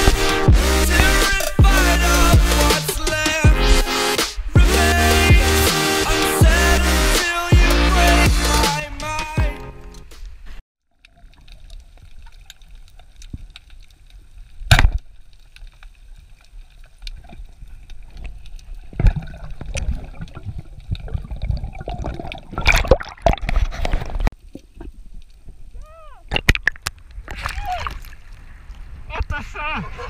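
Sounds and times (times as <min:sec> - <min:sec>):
underwater clicks: 0:26.3 - 0:28.2.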